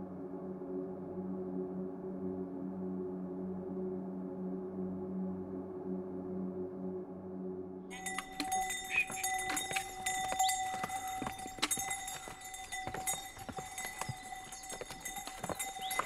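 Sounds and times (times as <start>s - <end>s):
hooves clopping on stone steps: 7.9s - 16.0s.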